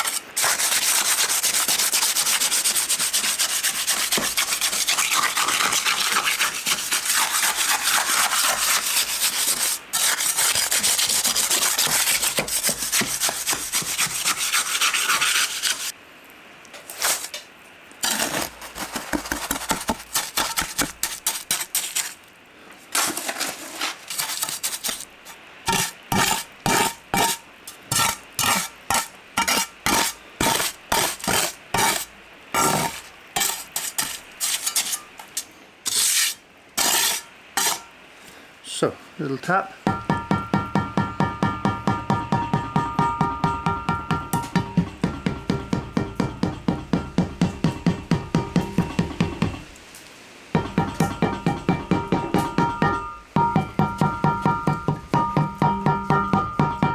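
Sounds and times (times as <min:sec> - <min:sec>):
trowel scraping wet concrete: 0:00.0 - 0:16.0, 0:16.8 - 0:17.4, 0:18.0 - 0:22.2, 0:22.9 - 0:25.1, 0:25.7 - 0:37.9.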